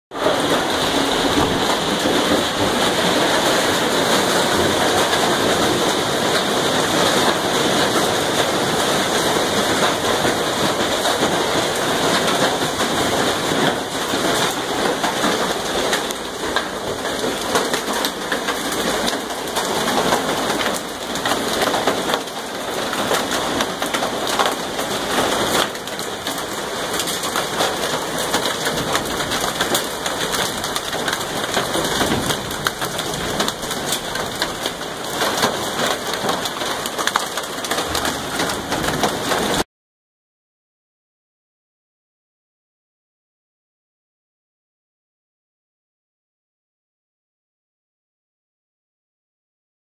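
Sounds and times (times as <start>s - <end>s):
hail and heavy rain clattering: 0.1s - 39.6s.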